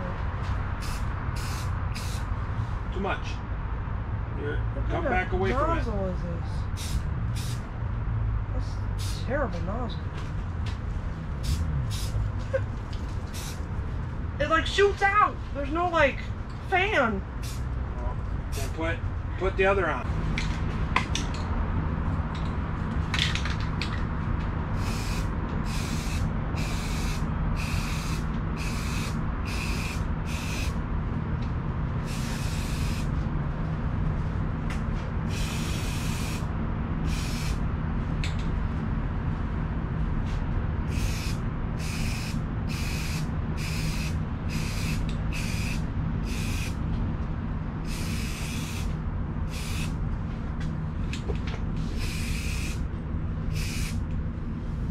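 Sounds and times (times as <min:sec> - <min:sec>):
steady low hum: 0:00.0 - 0:54.9
spray paint hissing: 0:00.8 - 0:02.3, 0:06.7 - 0:07.7, 0:08.9 - 0:09.3, 0:11.4 - 0:12.3, 0:13.2 - 0:13.6, 0:17.4 - 0:17.7, 0:24.8 - 0:30.8, 0:32.0 - 0:33.2, 0:35.3 - 0:37.6, 0:40.9 - 0:46.8, 0:47.8 - 0:50.0, 0:51.8 - 0:52.8, 0:53.5 - 0:54.0.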